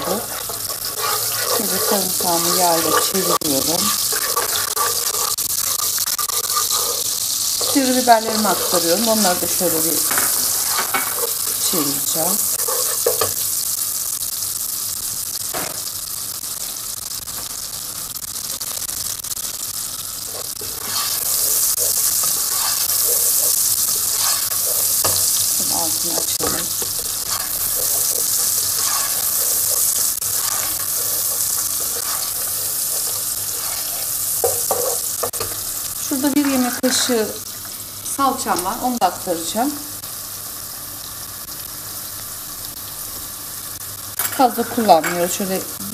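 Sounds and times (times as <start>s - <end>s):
spoon stirring in a pot: 0.0s - 13.6s, 20.2s - 37.1s
vegetables sizzling in oil: 0.0s - 45.9s.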